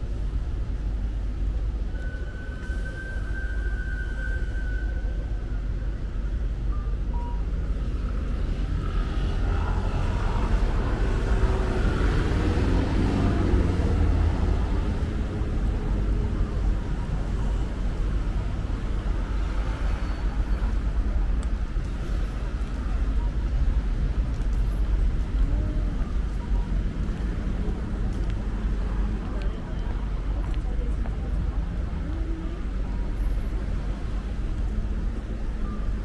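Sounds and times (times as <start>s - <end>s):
street traffic rumble: 0.0s - 36.0s
vehicle passing: 8.0s - 16.3s.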